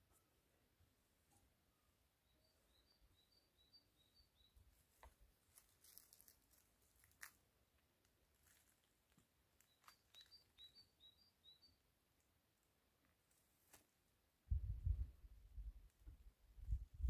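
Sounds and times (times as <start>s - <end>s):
small bird chirping: 2.2s - 4.6s, 9.6s - 11.9s.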